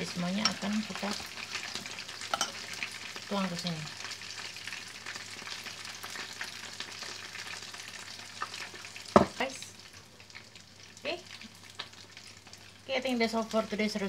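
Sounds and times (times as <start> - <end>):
light crackling hiss: 0.0 - 14.0
glass bowl clinking on counter: 2.3 - 2.6.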